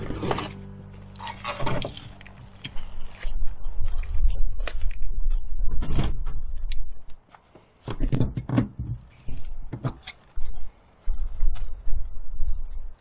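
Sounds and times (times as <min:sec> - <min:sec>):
low rumble: 0:00.0 - 0:07.1.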